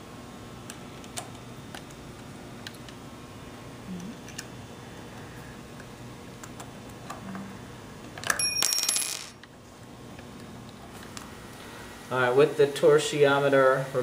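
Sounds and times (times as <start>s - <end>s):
bell-like metallic ring: 8.4s - 9.1s.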